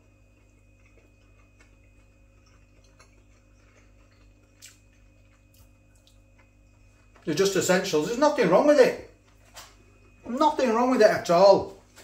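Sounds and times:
person chewing: 0.0s - 7.3s.

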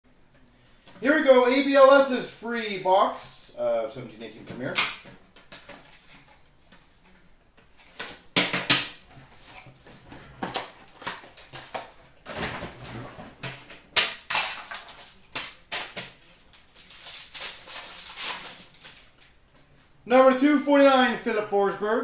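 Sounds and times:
packaging crinkling: 14.3s - 19.4s.

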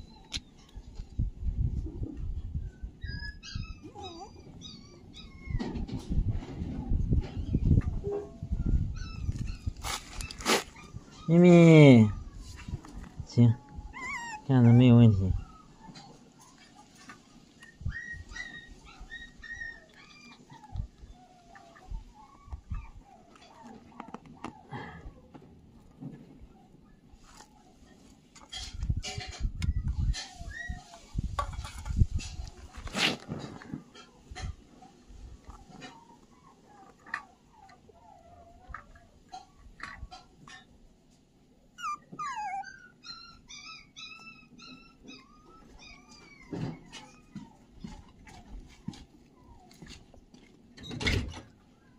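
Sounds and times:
young pet animal crying: 2.8s - 6.0s, 7.4s - 12.5s, 13.5s - 16.5s, 17.6s - 25.4s, 41.7s - 49.9s
lower animal calls: 13.5s - 15.9s, 41.8s - 49.7s.

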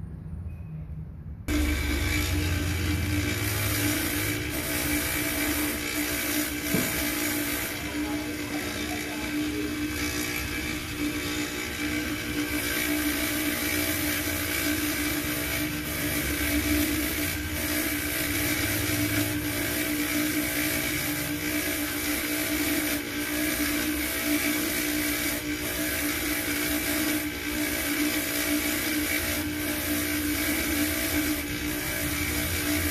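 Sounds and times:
polishing motor humming: 1.5s - 32.9s.

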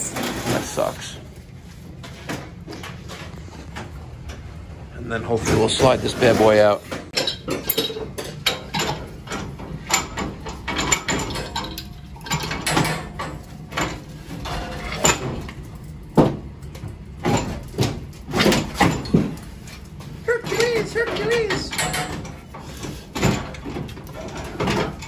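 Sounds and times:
pipe wrench clanking on metal pipe: 7.1s - 15.4s, 20.4s - 25.0s.

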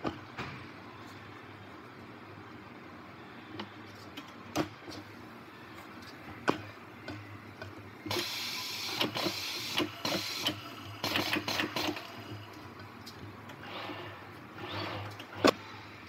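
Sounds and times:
tyre changer mechanical whirr: 13.4s - 16.0s.

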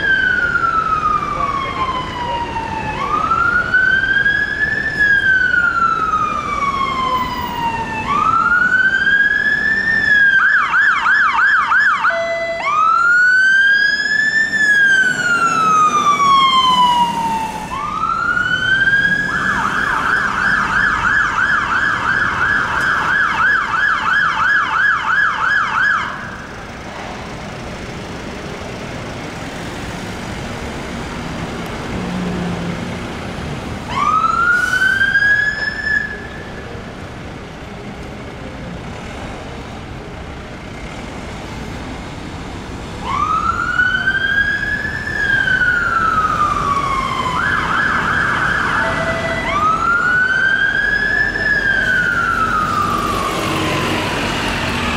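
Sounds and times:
city traffic noise: 0.0s - 54.9s
siren wailing and yelping: 43.1s - 53.6s.

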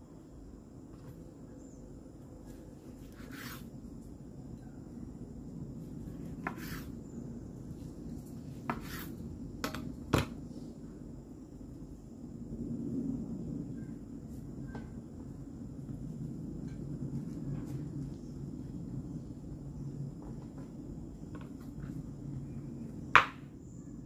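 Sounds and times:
knife slicing through roll: 3.1s - 3.7s, 6.4s - 6.9s, 8.7s - 9.2s.

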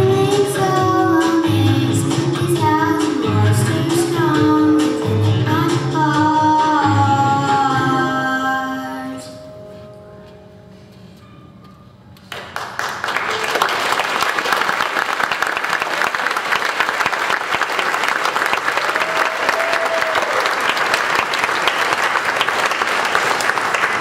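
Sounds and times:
audience applauding: 12.3s - 24.0s.

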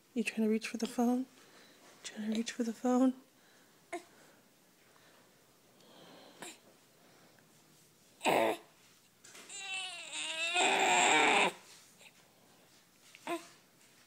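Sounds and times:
baby grunting: 8.2s - 8.7s, 9.5s - 11.6s
baby whining: 8.2s - 8.7s, 9.5s - 11.6s, 13.2s - 13.6s.

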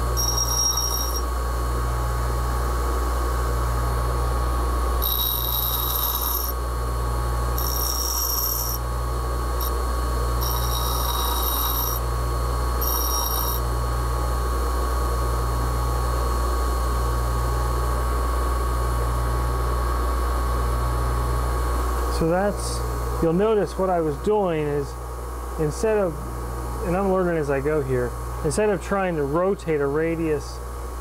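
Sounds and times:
bench grinder motor hum: 0.0s - 1.3s, 3.6s - 14.4s
steel grinding whine on wheel: 0.0s - 1.3s, 5.0s - 6.6s, 7.5s - 13.9s.

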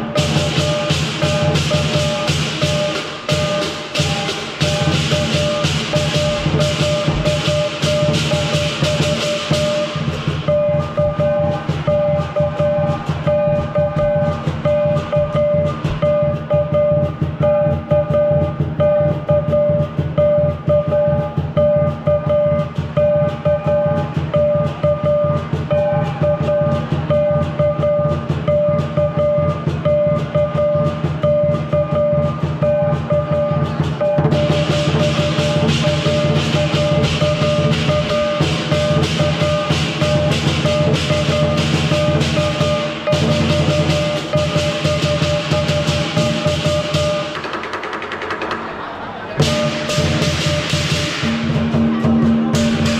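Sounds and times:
barrel drum beat: 0.0s - 48.8s, 49.4s - 52.9s
cymbals clashing: 0.0s - 52.9s.

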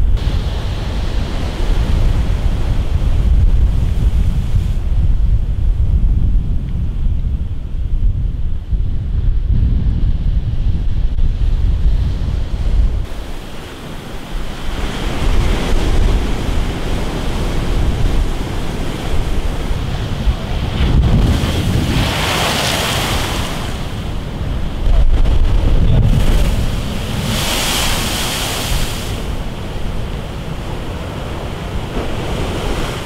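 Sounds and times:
wind buffeting microphone: 0.0s - 33.0s
surf breaking against seawall: 13.1s - 33.0s.

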